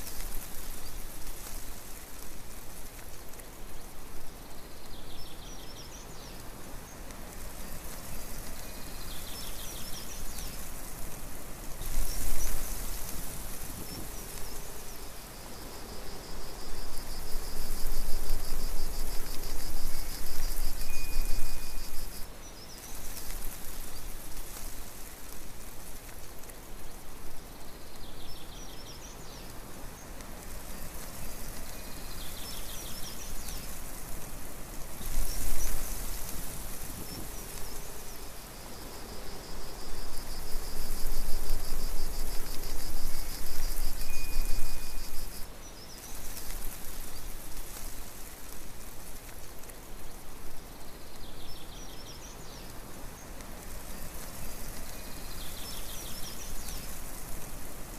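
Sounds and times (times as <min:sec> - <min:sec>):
wind rustling leaves: 0:00.0 - 0:57.9
faint high chirps: 0:20.7 - 0:22.2, 0:43.9 - 0:45.4.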